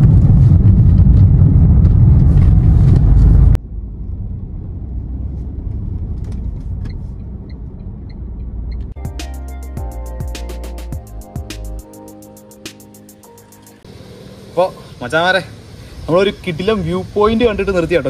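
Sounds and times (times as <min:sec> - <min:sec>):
car cabin engine rumble: 0:00.0 - 0:09.0
wind and road rumble: 0:00.0 - 0:09.0, 0:13.8 - 0:18.0.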